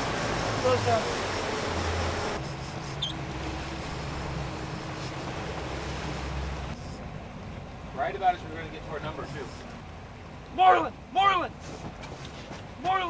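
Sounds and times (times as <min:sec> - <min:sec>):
rushing wind: 0:00.0 - 0:07.9
boat engine running: 0:00.0 - 0:11.1
water rushing: 0:00.0 - 0:11.8.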